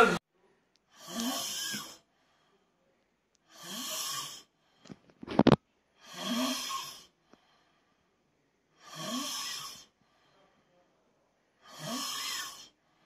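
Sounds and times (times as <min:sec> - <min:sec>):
man snoring: 0:01.0 - 0:02.0, 0:03.5 - 0:04.5, 0:06.0 - 0:07.1, 0:08.8 - 0:09.9, 0:11.6 - 0:12.8.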